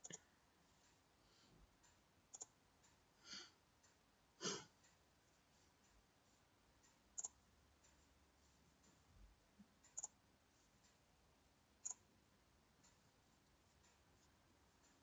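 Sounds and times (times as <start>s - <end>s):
computer mouse clicks: 0.0s - 0.2s, 2.3s - 2.6s, 7.2s - 7.4s, 9.8s - 10.2s, 11.8s - 12.1s
person breathing out in puffs: 3.2s - 3.5s.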